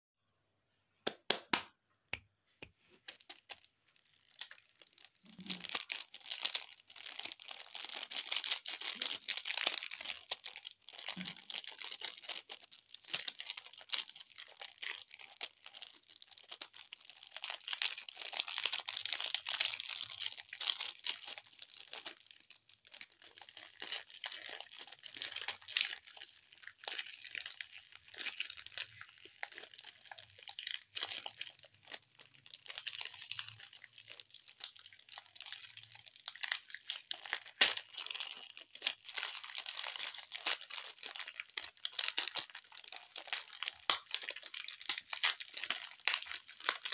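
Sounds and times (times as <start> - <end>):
hand claps: 1.0 - 1.8
candy wrappers crinkling and tearing: 2.9 - 46.9.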